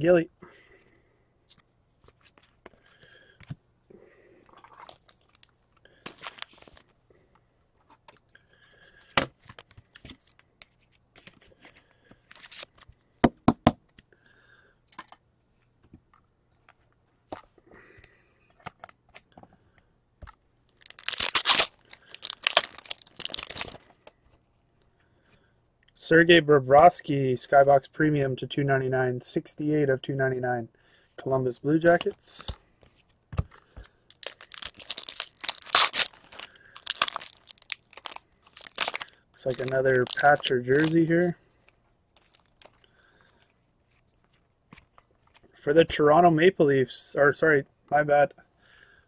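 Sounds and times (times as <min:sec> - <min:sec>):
cards rustling and sliding: 0:04.6 - 0:06.9, 0:09.2 - 0:13.0, 0:20.8 - 0:23.9, 0:31.9 - 0:41.1
foil wrapper crinkling and tearing: 0:04.6 - 0:06.9, 0:12.2 - 0:12.9, 0:20.7 - 0:23.9, 0:34.1 - 0:41.2, 0:42.1 - 0:45.5.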